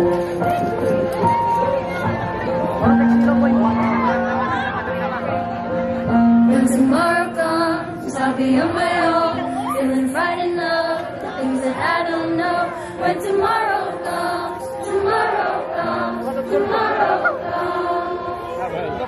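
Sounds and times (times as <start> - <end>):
group singing choir-like song: 6.5 - 18.9.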